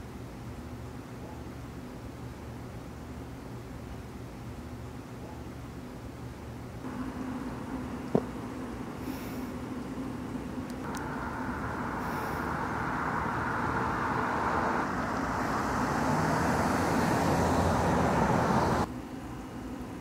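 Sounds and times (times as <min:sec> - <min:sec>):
road traffic noise: 0:06.8 - 0:19.2.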